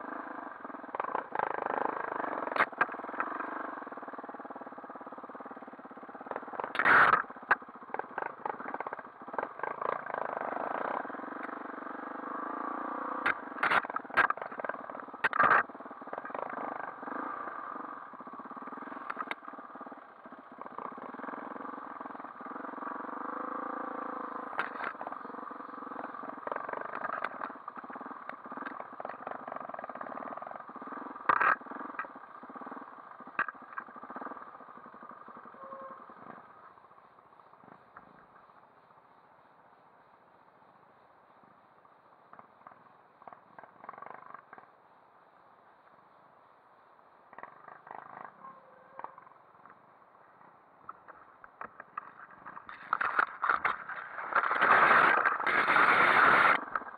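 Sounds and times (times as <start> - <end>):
dirt bike engine running: 0.0 - 36.6, 50.9 - 56.9
sharp knocks and clatter: 50.9 - 55.8.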